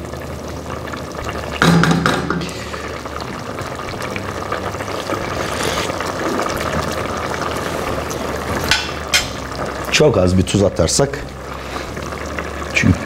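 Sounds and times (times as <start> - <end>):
broth bubbling in a pot: 0.0 - 13.0
utensil knock: 1.6 - 2.5
spoon stirring: 5.0 - 6.0.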